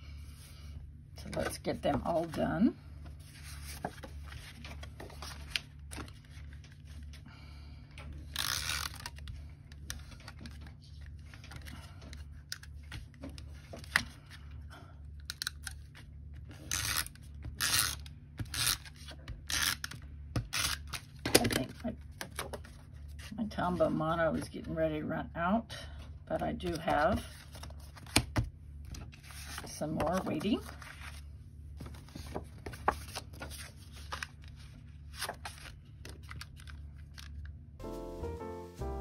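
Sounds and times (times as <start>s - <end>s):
paper rustling: 1.4s - 7.2s, 28.9s - 38.0s.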